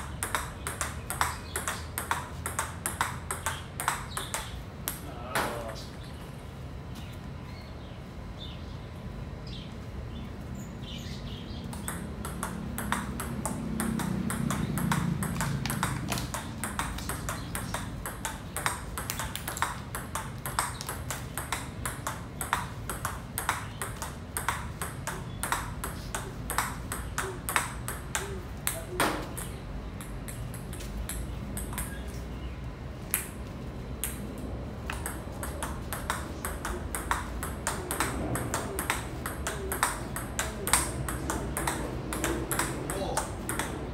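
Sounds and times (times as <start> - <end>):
table tennis ball clicks: 11.7 - 32.0.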